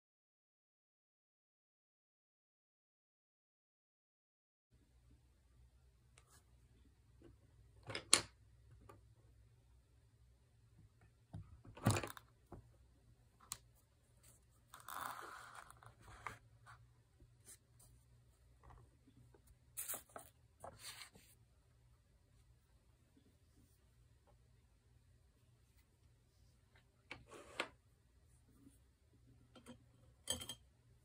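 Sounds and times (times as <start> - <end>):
brush tapping and scraping paper: 17.4 - 21.3
paper rustle: 19.8 - 21.3.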